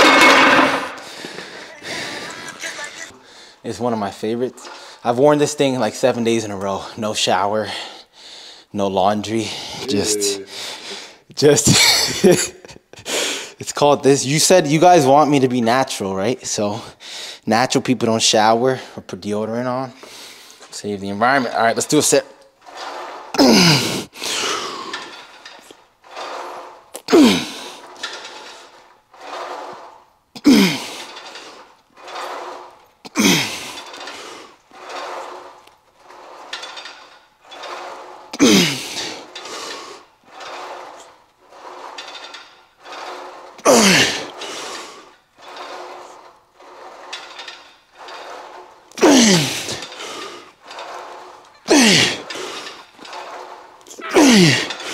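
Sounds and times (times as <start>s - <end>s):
man grunting exhales: 54.0s - 54.7s.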